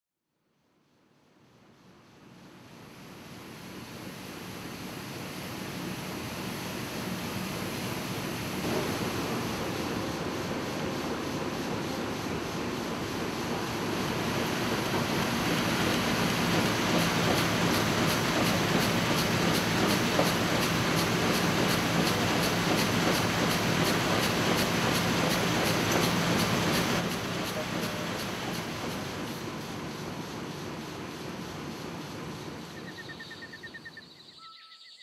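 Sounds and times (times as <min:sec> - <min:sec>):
printing press running: 0:08.6 - 0:30.0.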